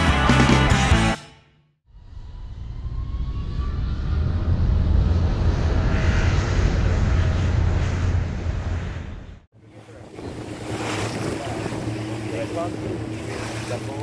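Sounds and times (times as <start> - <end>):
faint rising whine: 1.9 - 10.5
jet engine deep rumble: 1.9 - 14.0.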